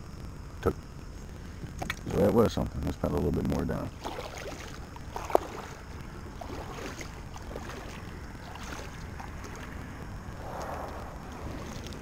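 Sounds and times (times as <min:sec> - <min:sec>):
paddle splashing and dripping: 0:03.9 - 0:09.9, 0:10.5 - 0:12.0.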